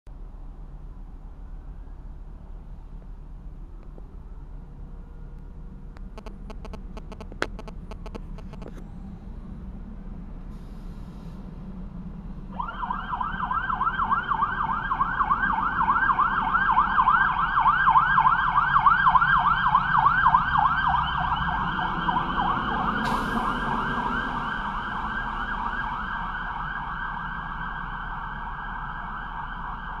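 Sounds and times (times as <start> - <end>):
low engine rumble: 0.1 - 30.0
fire engine siren yelping: 12.5 - 30.0.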